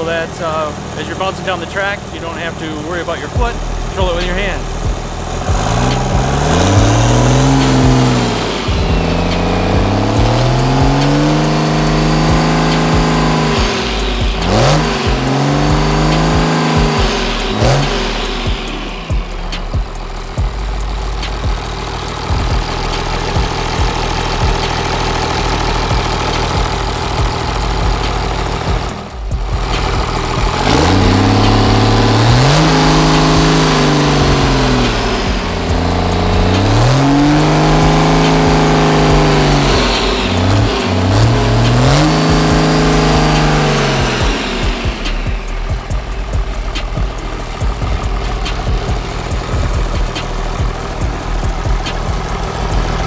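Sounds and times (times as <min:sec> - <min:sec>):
diesel engine idling and revving: 0:00.0 - 0:53.0.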